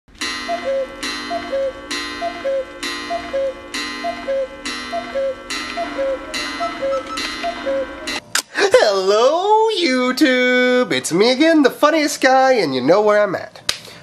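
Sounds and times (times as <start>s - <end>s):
clock tick-tock: 0.2s - 8.2s
ringing chime: 0.2s - 8.2s.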